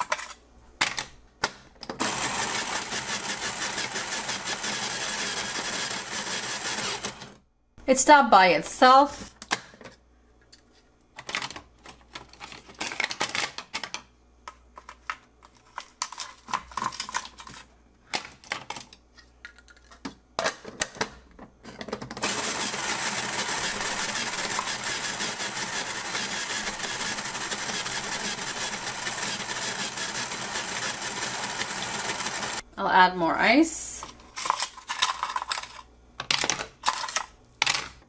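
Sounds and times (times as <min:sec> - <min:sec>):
motor grinding ice: 0:02.0 - 0:07.3, 0:22.2 - 0:32.6.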